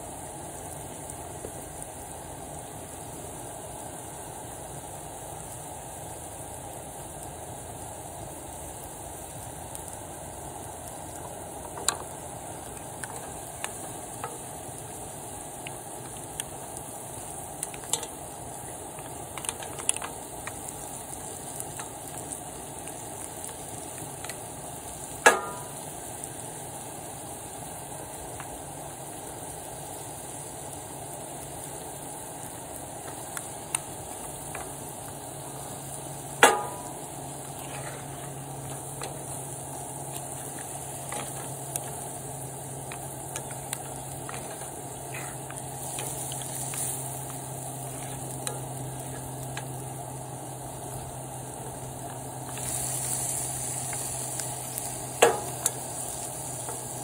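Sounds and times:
seafood sizzling in a skillet: 0.0s - 57.0s.

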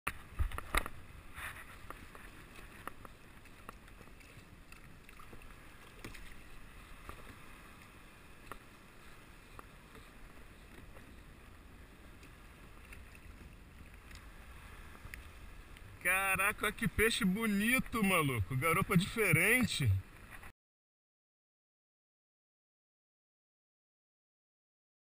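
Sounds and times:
water lapping against kayak hull: 0.1s - 20.5s
faint clicks: 12.2s - 14.3s.

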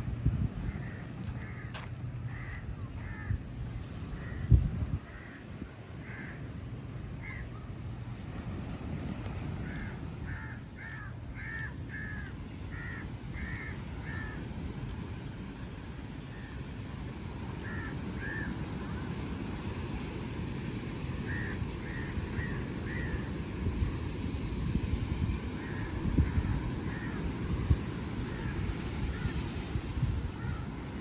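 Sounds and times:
crow cawing: 0.7s - 3.4s, 6.0s - 6.4s, 7.2s - 7.4s, 9.6s - 14.4s, 17.6s - 18.5s, 21.3s - 23.3s, 25.6s - 27.3s, 28.3s - 29.4s, 30.4s - 30.7s.

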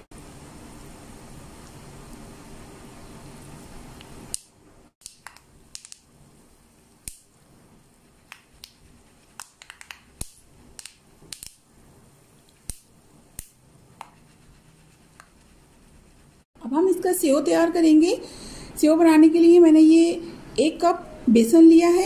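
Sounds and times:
seeds sizzling in oil: 0.2s - 14.8s
sharp pops and crackles: 4.0s - 6.2s, 6.8s - 7.4s, 8.2s - 11.7s, 12.4s - 14.2s.

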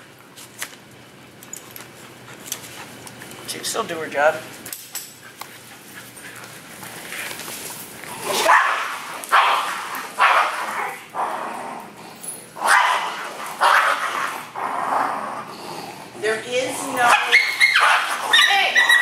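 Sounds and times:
dogs barking: 8.3s - 11.1s, 12.6s - 14.5s, 17.0s - 19.0s.

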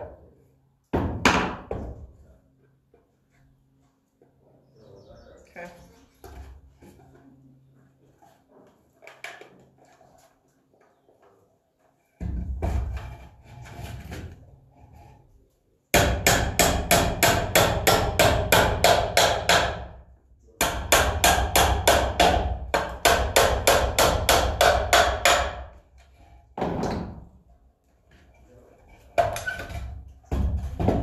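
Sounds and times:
hammer striking wooden box: 16.0s - 19.8s, 20.6s - 25.6s.

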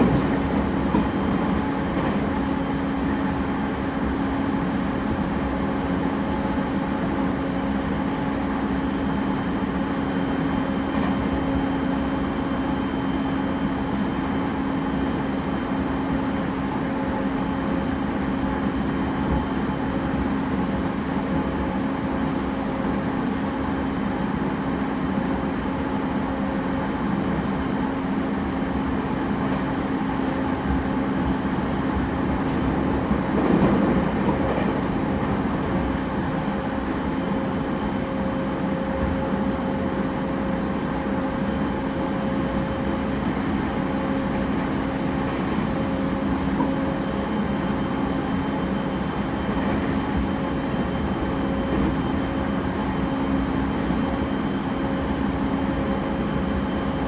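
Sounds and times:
steady train hum: 0.0s - 57.0s
train wheels rumbling on rails: 0.0s - 57.0s.

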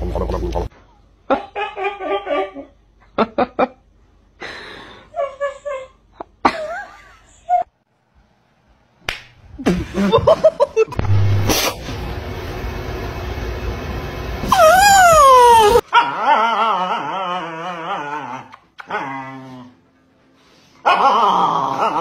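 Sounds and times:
dogs whining and yipping: 14.5s - 19.5s.

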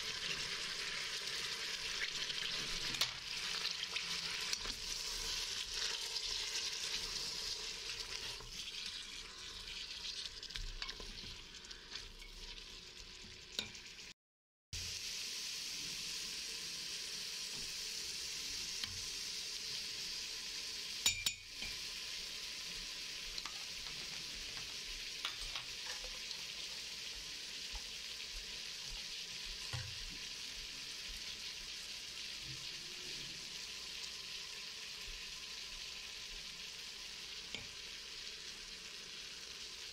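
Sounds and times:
onions and meat sizzling in oil: 0.0s - 14.2s, 14.8s - 39.9s.

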